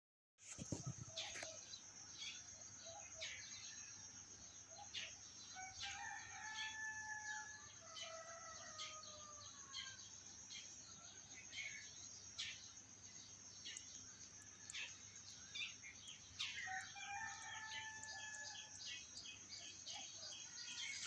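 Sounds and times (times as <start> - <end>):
rooster crowing: 5.6 - 10.0, 16.6 - 18.8.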